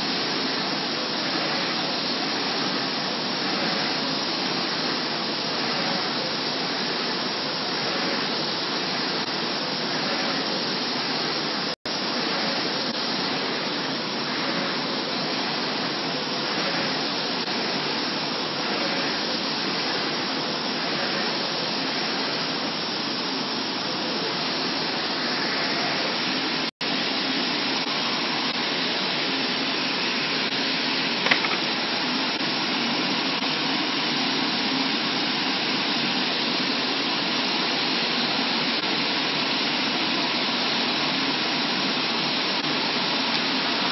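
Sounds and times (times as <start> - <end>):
printer whirring: 0.0 - 43.9
sharp click: 31.2 - 31.7.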